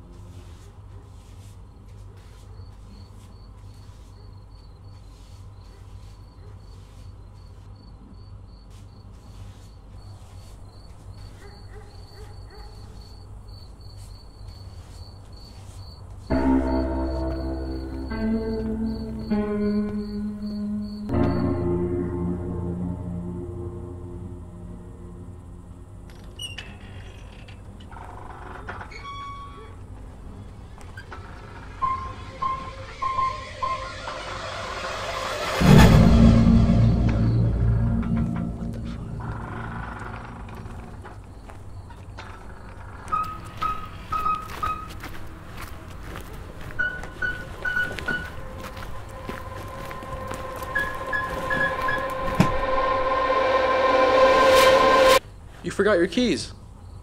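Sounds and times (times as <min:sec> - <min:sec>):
crickets chirping: 0:01.2 - 0:57.0
loud music: 0:16.3 - 0:25.1, 0:31.8 - 0:39.2, 0:49.2 - 0:55.2
low steady hum: 0:16.3 - 0:26.4
low steady rumble: 0:31.5 - 0:41.0
swing chains creaking: 0:38.1 - 0:41.3.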